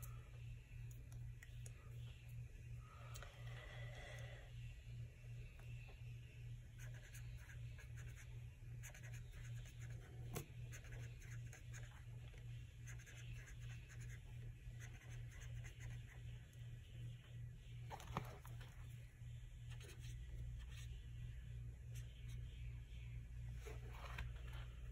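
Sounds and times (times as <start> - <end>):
steady low hum: 0.0 - 24.9
marker scratching on paper: 6.8 - 12.0, 12.8 - 16.2.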